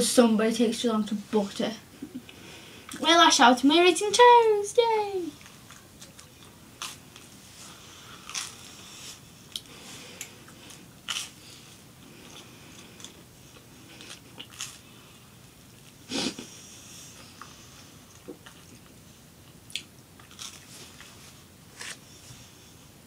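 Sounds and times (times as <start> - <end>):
toast crunching: 8.1 - 8.8, 12.2 - 14.9, 18.1 - 21.1.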